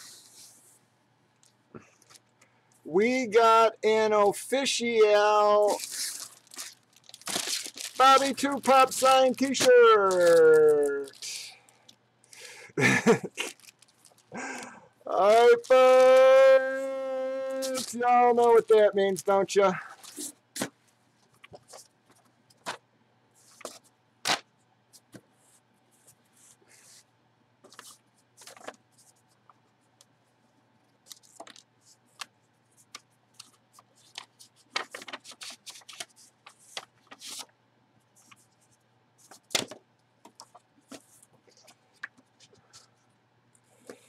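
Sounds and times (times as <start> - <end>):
paper rustling and crinkling: 5.0 - 12.0, 13.3 - 14.4, 17.5 - 22.8, 23.4 - 24.4, 27.6 - 29.5, 31.0 - 37.5, 38.2 - 43.0.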